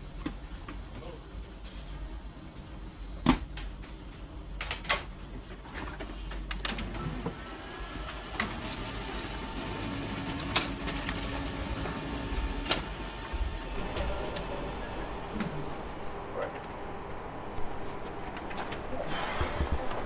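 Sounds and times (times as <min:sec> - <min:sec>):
low steady hum: 0:10.5 - 0:20.0.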